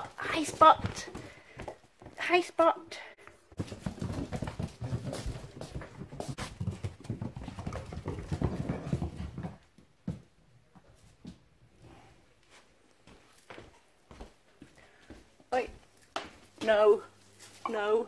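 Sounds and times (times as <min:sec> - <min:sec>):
footsteps on wooden boards: 0:00.0 - 0:02.3, 0:03.5 - 0:11.4
puppy paws clattering on wooden floor: 0:03.6 - 0:11.0.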